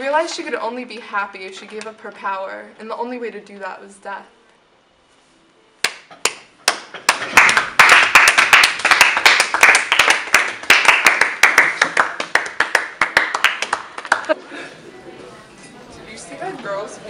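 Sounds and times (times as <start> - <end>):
people clapping: 5.8 - 14.4.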